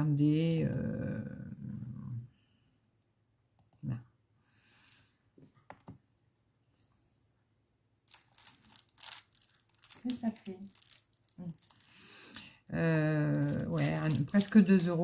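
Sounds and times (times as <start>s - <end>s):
rustling: 8.1s - 12.0s.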